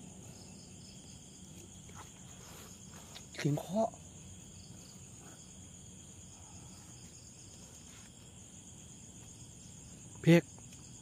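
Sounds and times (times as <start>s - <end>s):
night insects chorus: 0.0s - 11.0s.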